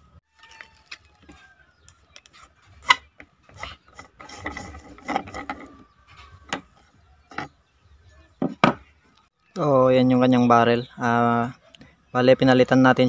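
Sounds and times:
tube rubbing and scraping on barrel: 0:02.2 - 0:07.6.

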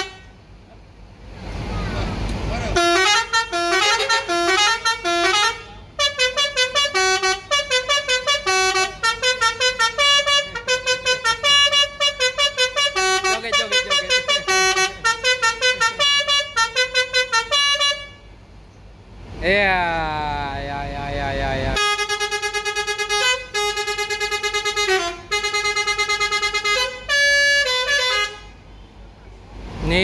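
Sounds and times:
bus horn playing a tune: 0:00.0 - 0:00.6, 0:02.6 - 0:18.5, 0:21.4 - 0:29.0.

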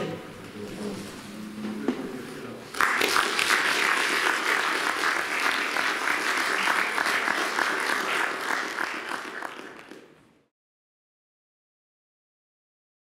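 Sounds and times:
audience applauding: 0:02.7 - 0:10.2.

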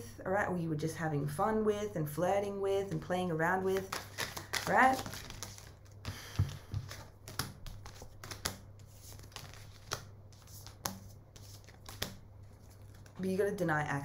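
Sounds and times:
cards shuffling: 0:03.6 - 0:13.2.

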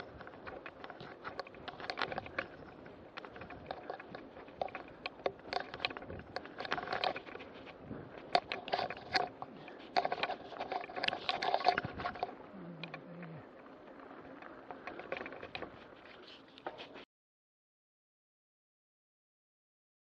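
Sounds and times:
bike clicks and knocks: 0:00.0 - 0:13.1
tyres rolling on dirt: 0:00.0 - 0:17.0.

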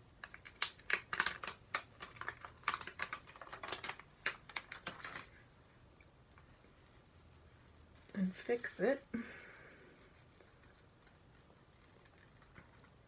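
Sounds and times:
plastic film peeling crackles: 0:00.2 - 0:05.4.

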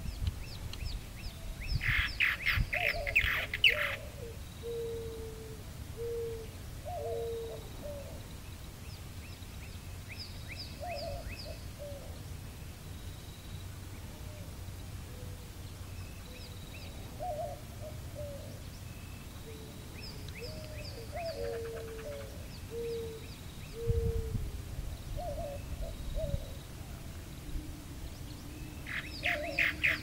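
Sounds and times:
bird cooing: 0:01.4 - 0:08.3, 0:10.8 - 0:12.2, 0:14.1 - 0:15.5, 0:16.3 - 0:18.7, 0:19.4 - 0:27.6, 0:28.2 - 0:30.0
birds chirping sharply: 0:01.7 - 0:04.1, 0:28.2 - 0:30.0.

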